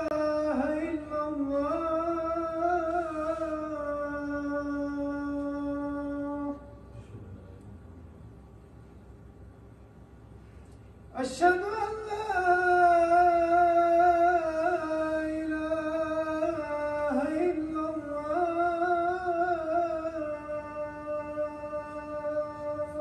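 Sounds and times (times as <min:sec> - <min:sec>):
man chanting call to prayer: 0:11.2 - 0:23.0.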